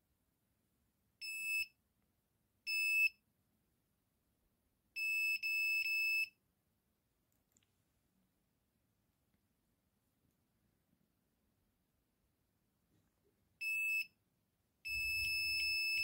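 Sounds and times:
metal detector beeping: 0:14.9 - 0:16.0.

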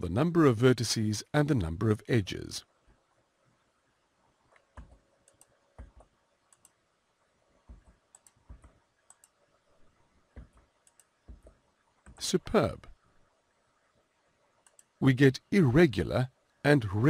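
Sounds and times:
keyboard and mouse clicks: 0:04.5 - 0:06.8, 0:07.6 - 0:09.4, 0:10.3 - 0:12.2, 0:14.6 - 0:15.0.

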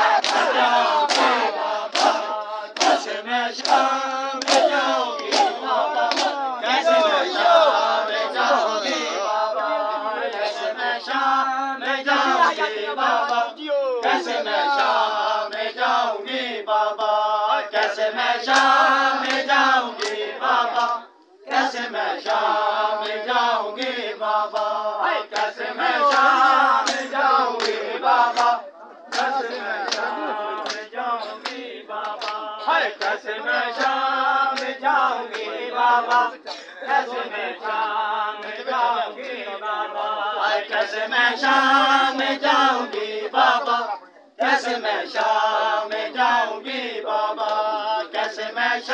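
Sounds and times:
men chanting in chorus: 0:00.0 - 0:48.9
hands slapping bare chests: 0:00.2 - 0:06.4, 0:18.5 - 0:19.4, 0:20.0 - 0:21.0, 0:23.8 - 0:33.2.

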